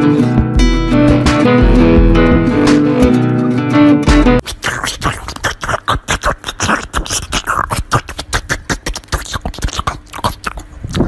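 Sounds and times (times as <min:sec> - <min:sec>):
dog chewing watermelon: 0:04.4 - 0:11.0.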